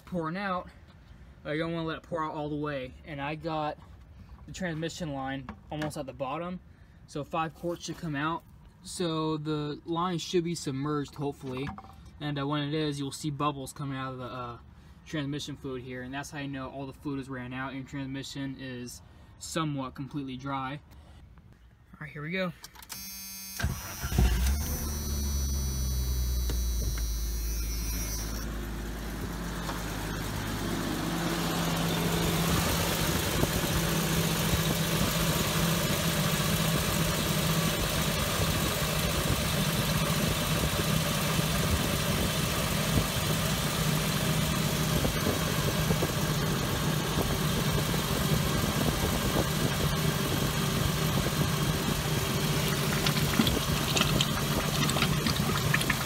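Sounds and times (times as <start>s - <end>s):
car engine idling: 23.9s - 56.0s
fluid pouring into bucket: 52.5s - 56.0s.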